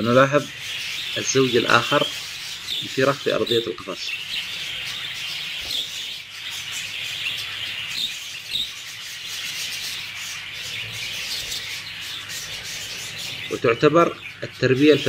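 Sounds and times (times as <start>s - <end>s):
budgerigars twittering: 0.0s - 15.0s.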